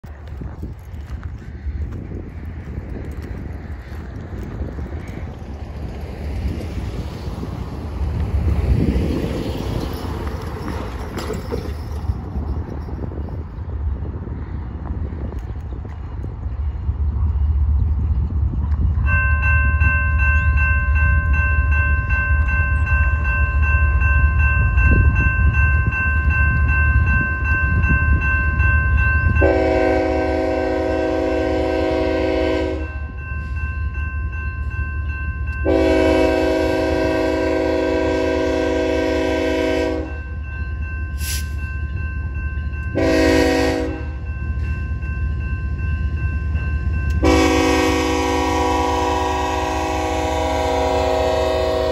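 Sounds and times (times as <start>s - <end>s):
railroad crossing bell ringing: 7.4s - 14.1s, 18.6s - 51.9s
locomotive horn blasts: 29.4s - 33.0s, 35.6s - 40.2s, 42.9s - 44.2s, 47.2s - 51.9s.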